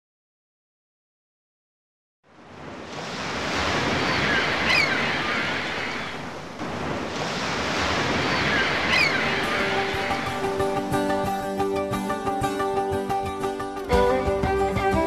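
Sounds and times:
ocean waves washing in: 2.2 - 13.9.

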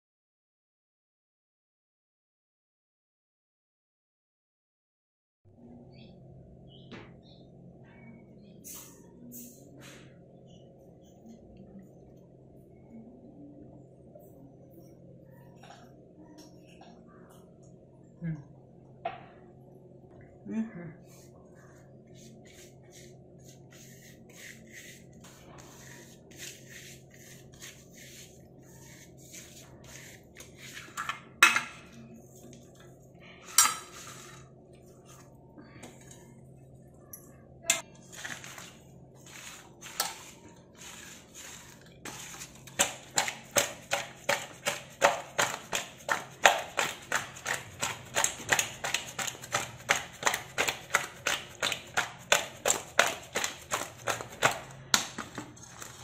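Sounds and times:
hands scraping spices on steel plate: 22.2 - 31.1.

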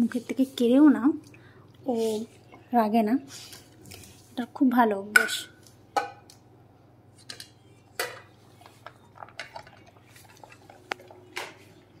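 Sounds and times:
dog eating from metal bowl: 8.5 - 11.4.

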